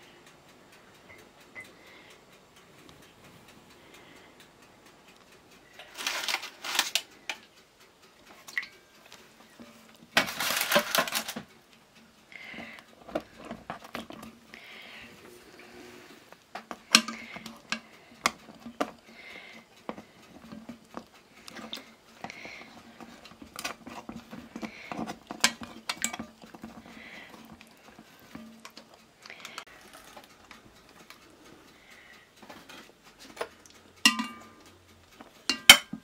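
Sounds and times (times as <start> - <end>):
dishes and utensils clinking: 23.0 - 26.8, 33.3 - 34.6, 35.4 - 36.0.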